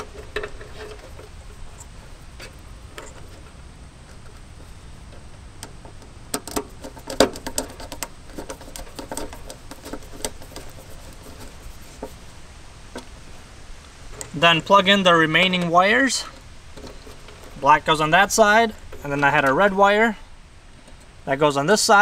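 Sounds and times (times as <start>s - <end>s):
screwdriver clicking and scraping: 5.6s - 12.2s, 15.6s - 19.6s.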